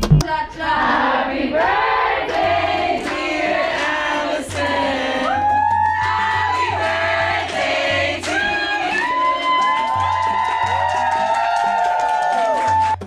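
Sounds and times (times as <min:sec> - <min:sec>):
group of people singing: 0:00.2 - 0:09.5.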